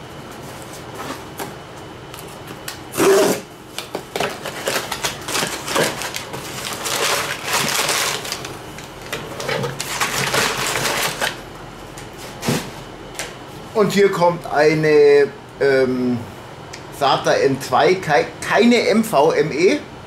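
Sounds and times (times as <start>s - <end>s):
packing paper crinkling: 3.8s - 11.4s.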